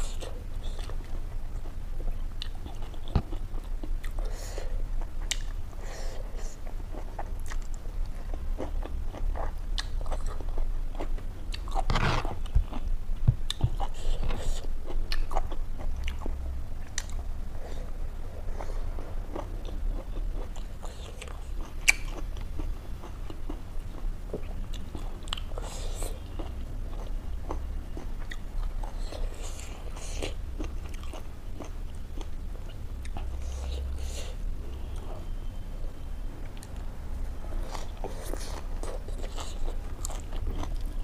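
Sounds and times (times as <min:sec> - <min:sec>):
person chewing and biting food: 0:07.0 - 0:12.9, 0:37.6 - 0:41.0.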